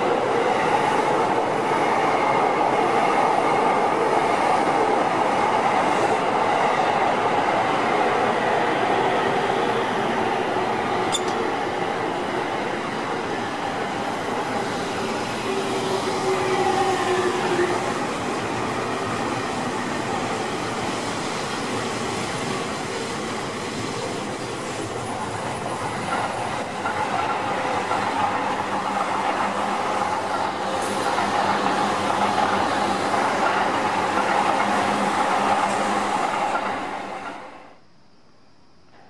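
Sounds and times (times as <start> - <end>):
train whining tone: 8.0 - 23.2
wheels on rail: 10.8 - 37.4.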